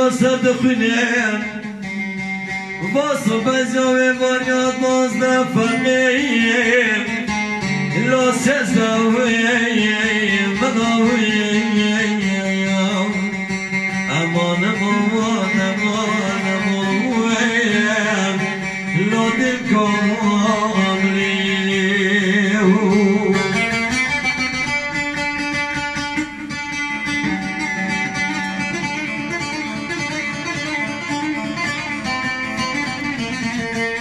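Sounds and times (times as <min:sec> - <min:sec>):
man singing into a microphone: 0:00.0 - 0:02.0, 0:02.8 - 0:23.6
plucked lutes: 0:00.0 - 0:34.0.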